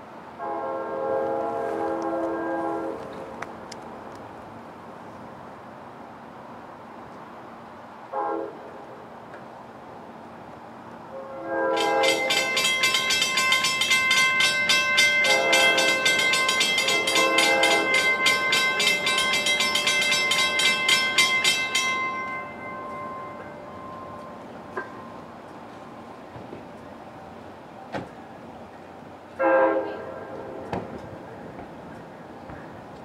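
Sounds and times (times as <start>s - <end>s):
train air horn blasts: 0.4s - 3.1s, 8.1s - 8.6s, 11.1s - 12.5s, 15.2s - 16.2s, 16.8s - 18.2s, 29.4s - 30.7s
train bell ringing rapidly: 11.7s - 24.5s.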